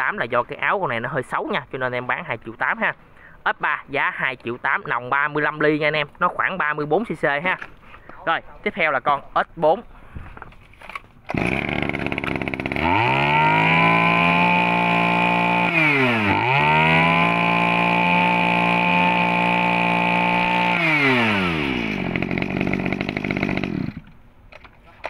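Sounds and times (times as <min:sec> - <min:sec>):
brush cutter engine revving: 0:11.3 - 0:24.2.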